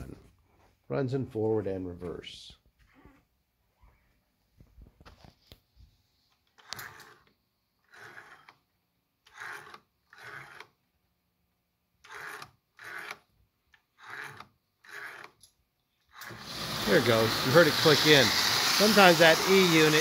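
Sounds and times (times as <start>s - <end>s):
toy locomotive rasping buzzes: 6.6s - 8.6s, 9.3s - 10.7s, 16.1s - 20.0s.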